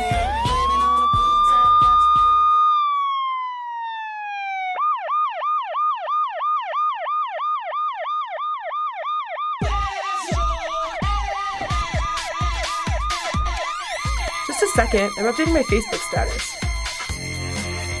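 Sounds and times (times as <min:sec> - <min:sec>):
music with heavy bass beat: 0:00.0 - 0:02.6, 0:09.6 - 0:18.0
electronic siren wailing and yelping: 0:00.0 - 0:18.0.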